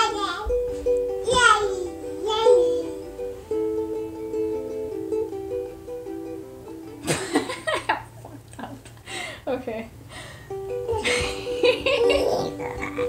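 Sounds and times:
ukulele strummed in chords: 0.0s - 7.5s, 10.5s - 13.0s.

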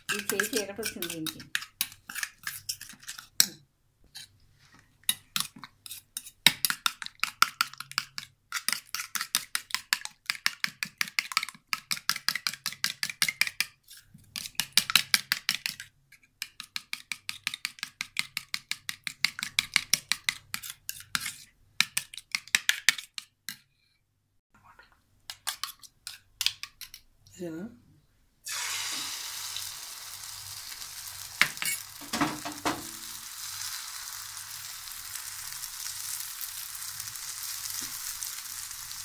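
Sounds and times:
spoon beating eggs in metal bowl: 0.0s - 4.3s, 5.0s - 23.8s, 25.3s - 27.1s, 31.4s - 33.2s.

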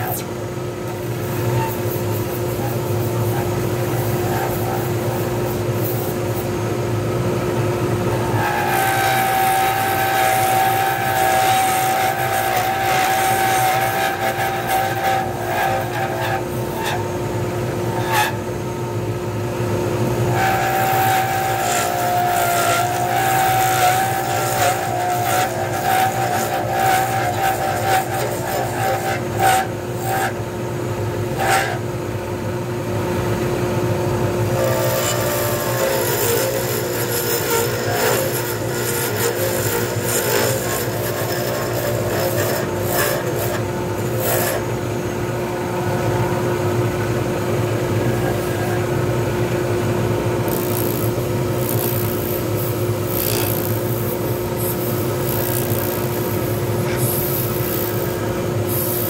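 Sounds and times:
lathe motor hum: 6.4s - 33.5s, 34.1s - 59.0s
turning tool scraping resin: 8.3s - 17.1s, 20.3s - 30.4s, 31.3s - 31.8s, 34.6s - 44.8s, 50.5s - 59.0s.

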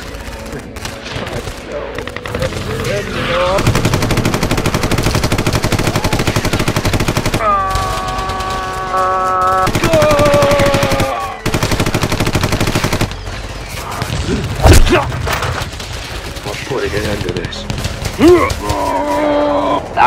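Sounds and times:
machine-gun fire: 3.6s - 13.2s.

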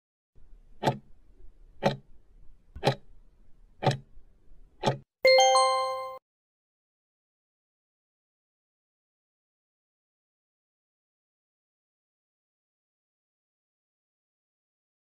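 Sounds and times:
clock ticking: 0.8s - 1.0s, 1.8s - 2.1s, 2.8s - 3.0s, 3.8s - 4.1s, 4.8s - 5.0s
bell-like chime: 5.3s - 6.2s.

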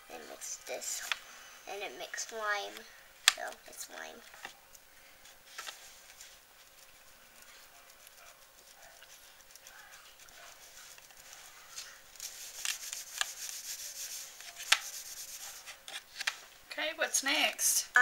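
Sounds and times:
crayon scratching on paper: 5.6s - 16.0s.

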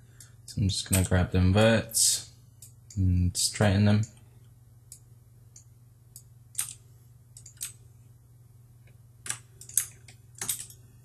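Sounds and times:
faint low hum: 0.0s - 11.0s
computer mouse and keyboard clicks: 5.6s - 6.8s, 7.4s - 7.8s, 9.2s - 10.8s.

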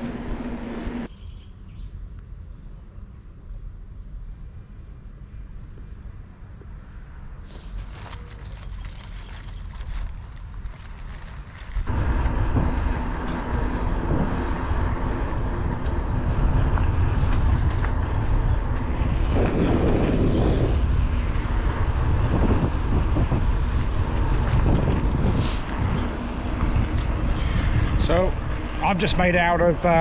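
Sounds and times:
tyres rumbling on rough tarmac: 7.9s - 30.0s
wind buffeting microphone: 7.9s - 30.0s.

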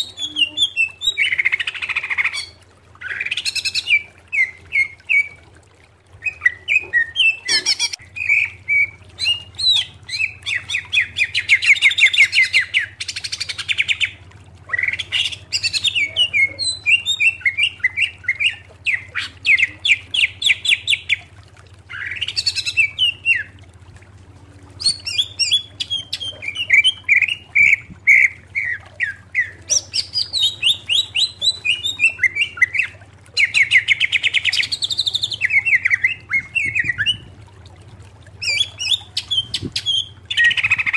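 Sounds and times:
bird singing chirps and trills: 0.0s - 5.4s, 6.2s - 21.0s, 38.4s - 40.9s.

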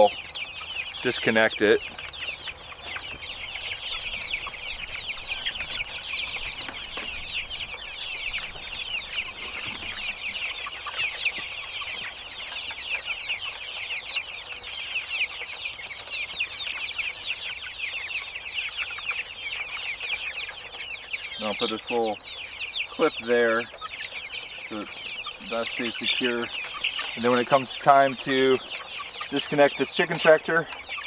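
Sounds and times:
chicks peeping: 0.0s - 31.0s.

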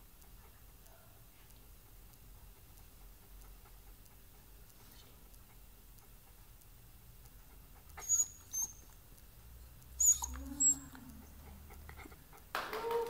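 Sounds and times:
dog toy squeaking: 8.0s - 8.8s, 10.0s - 10.9s.

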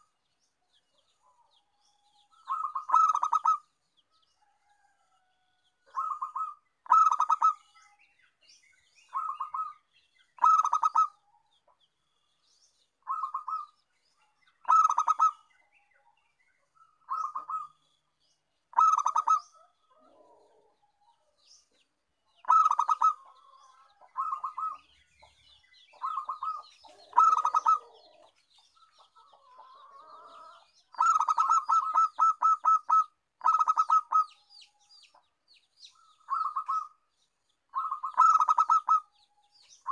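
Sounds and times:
dove cooing: 2.4s - 3.6s, 5.9s - 7.7s, 9.1s - 9.8s, 10.4s - 11.2s, 13.1s - 13.7s, 14.7s - 15.5s, 18.7s - 20.8s, 22.4s - 24.9s, 25.9s - 28.3s, 29.3s - 34.4s, 36.2s - 37.0s, 37.7s - 39.1s.

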